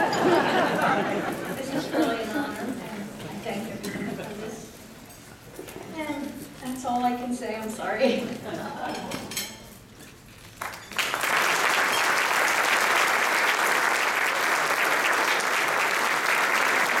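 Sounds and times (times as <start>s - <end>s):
audience applauding: 10.6s - 17.0s.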